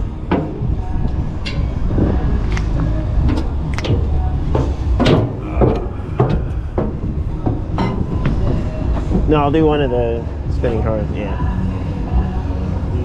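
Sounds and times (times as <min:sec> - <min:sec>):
low rumble: 0:00.0 - 0:13.0
footsteps on metal steps: 0:00.2 - 0:10.0.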